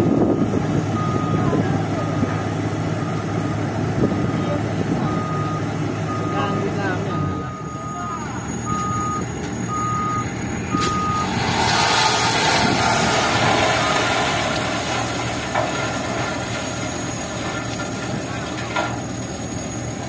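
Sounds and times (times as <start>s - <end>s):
diesel engines running: 0.0s - 20.0s
truck reversing alarm beeping: 0.0s - 20.0s
stones sliding out of truck bed: 10.9s - 19.8s.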